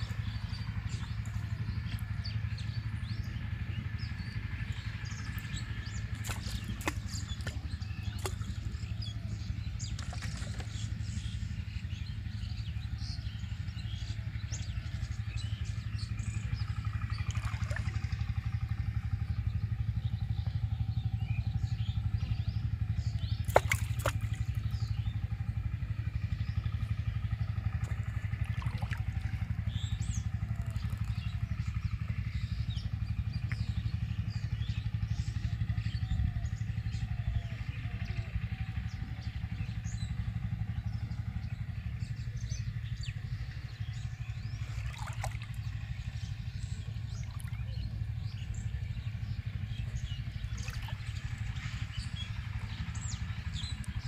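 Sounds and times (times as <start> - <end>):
low engine-like drone: 0.0 - 54.0.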